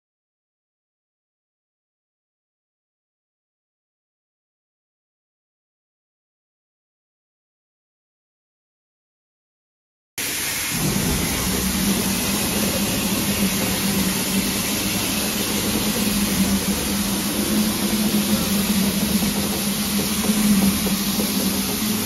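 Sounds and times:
steam hissing: 10.2 - 22.0
low even hum: 10.7 - 22.0.

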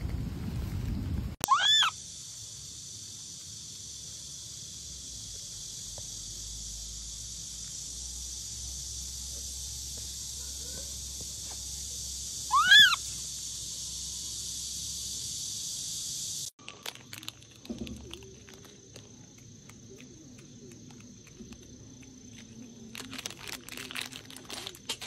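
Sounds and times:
animal call rising and falling: 1.4 - 2.0, 12.5 - 13.0
high-pitched insect buzz: 1.5 - 25.0.

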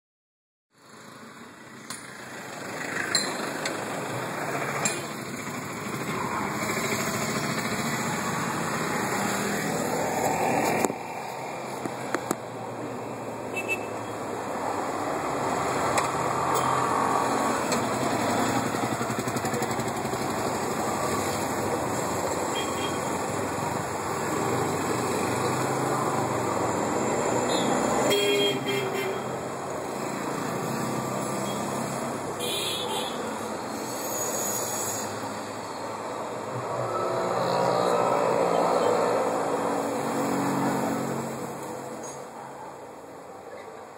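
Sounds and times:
street traffic passing: 0.7 - 43.9
motorcycle pulling away: 4.4 - 9.9, 15.7 - 22.0.

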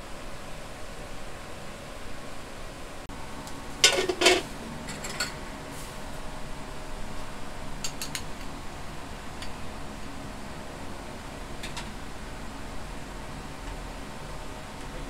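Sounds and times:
kitchen hum: 0.9 - 15.0
utensils clanking against pot: 3.8 - 5.4, 7.8 - 8.4.

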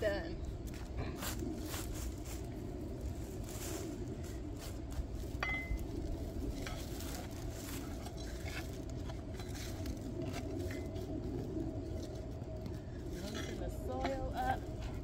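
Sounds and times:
steady low rumble: 0.0 - 15.0
ceramic pot clinking on ground: 5.4 - 5.8.

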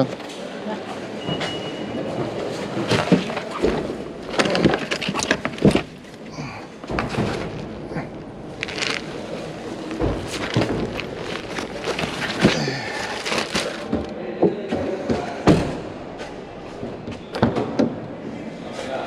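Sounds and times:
bags rustling: 2.2 - 14.2.

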